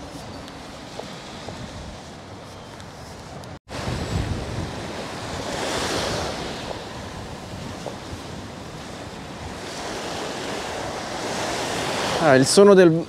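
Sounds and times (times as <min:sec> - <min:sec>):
wind rumbling on microphone: 0:00.0 - 0:13.0
small waves washing on sand: 0:03.6 - 0:13.0.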